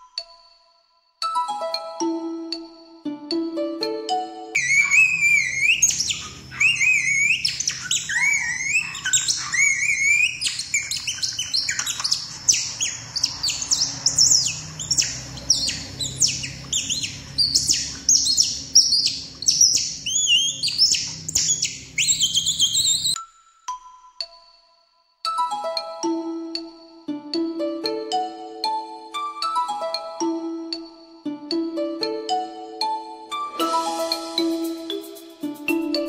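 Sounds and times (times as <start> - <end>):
songbirds chirping and whistling: 4.6 - 23.2.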